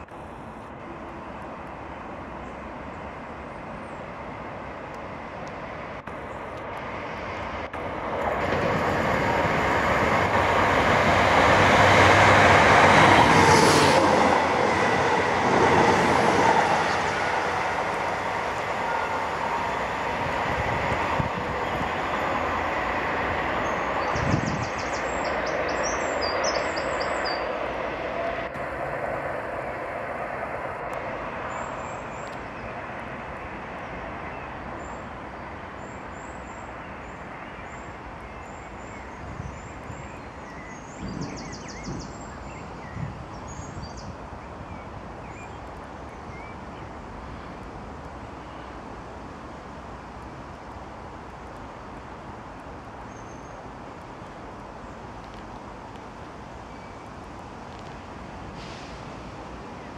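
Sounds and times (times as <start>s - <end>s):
diesel train pulling away: 0.0s - 50.4s, 56.4s - 59.9s
birds chirping: 14.3s - 28.2s.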